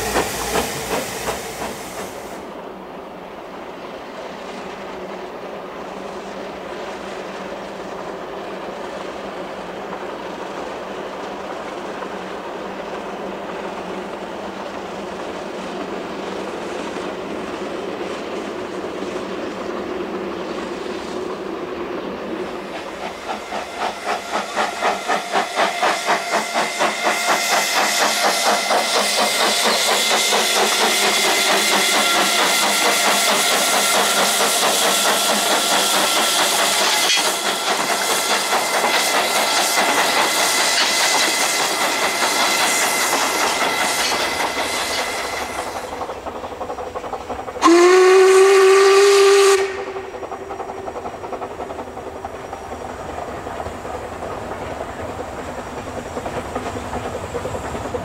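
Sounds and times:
train wheels clacking: 0.0 - 2.6, 4.2 - 58.0
steam hissing: 0.0 - 58.0
steam whistle blast: 23.4 - 34.5, 47.6 - 50.1.

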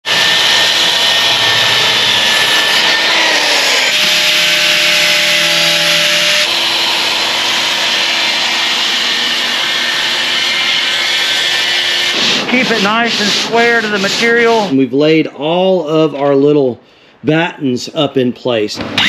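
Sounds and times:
angle grinder sanding wood: 0.0 - 14.8
circular saw cutting plywood: 0.0 - 14.8.

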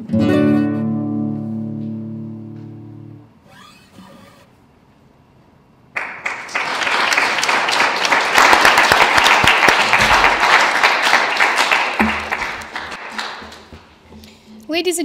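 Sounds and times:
audience applauding: 6.0 - 13.8.

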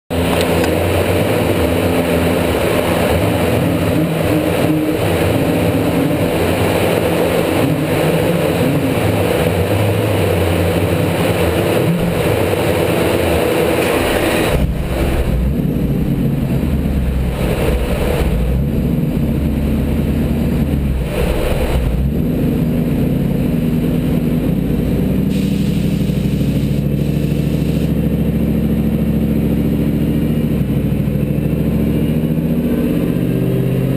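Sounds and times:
engine running on dyno: 0.1 - 33.9
loud rushing hiss: 25.2 - 28.0.

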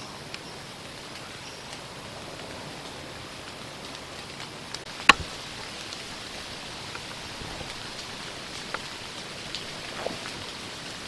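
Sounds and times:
steady background hiss: 0.0 - 11.0
bow string snap: 5.0 - 5.4.

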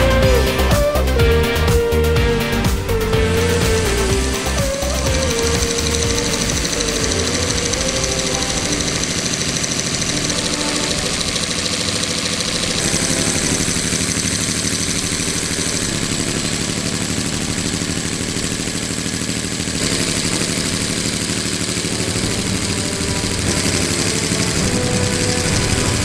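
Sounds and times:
model engine clattering: 2.6 - 26.0.

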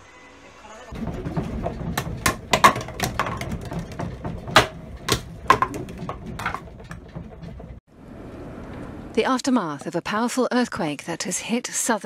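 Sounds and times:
objects rattling and clattering: 0.9 - 7.8.

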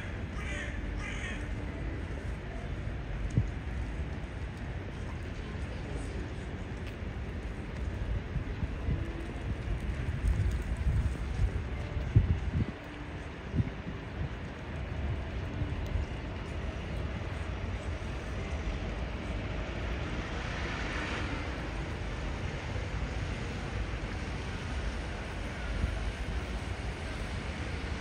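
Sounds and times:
street traffic: 0.0 - 28.0
wind buffeting microphone: 3.3 - 19.9.

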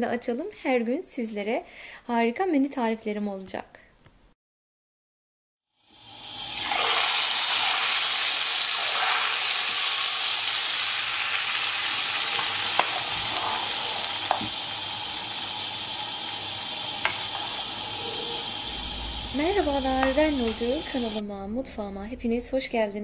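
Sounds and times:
soup sizzling in a pot: 5.8 - 21.2.

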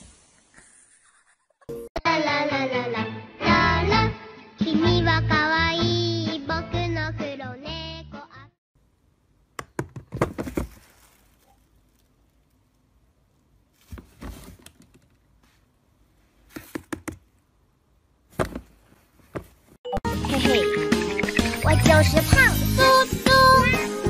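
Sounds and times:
plastic bin lid knocking and flapping: 9.6 - 10.9, 13.8 - 15.1, 16.5 - 17.2, 18.3 - 19.6.

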